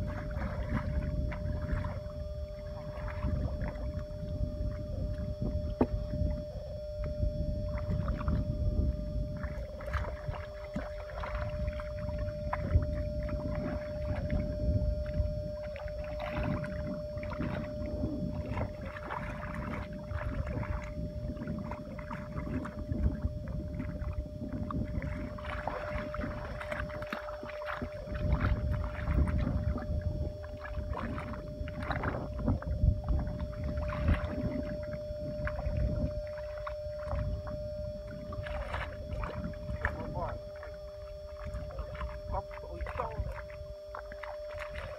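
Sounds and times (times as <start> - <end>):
splashing in muddy water: 0.0 - 44.9
wet squelches in mud: 41.4 - 44.9.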